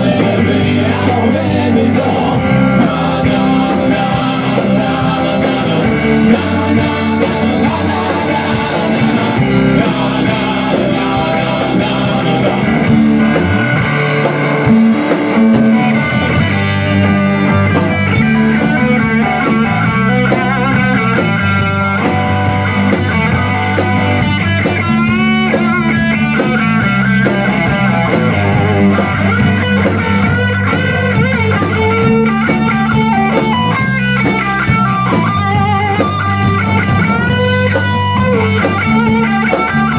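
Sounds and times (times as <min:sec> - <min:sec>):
bass guitar: 0:00.0 - 0:39.9
drum kit: 0:00.0 - 0:39.9
electric guitar lead line: 0:00.0 - 0:39.9.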